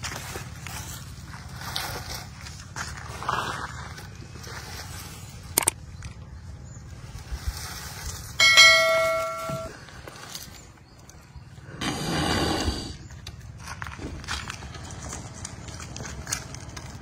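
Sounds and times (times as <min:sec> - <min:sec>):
outdoor background noise: 0:00.0 - 0:17.0
bright metallic bell ding: 0:08.4 - 0:09.8.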